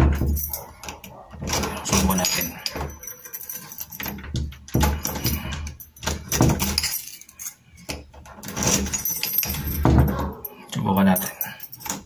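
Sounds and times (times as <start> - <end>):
doorknob knocks: 0.0 - 2.0
keys jangling: 0.0 - 12.0.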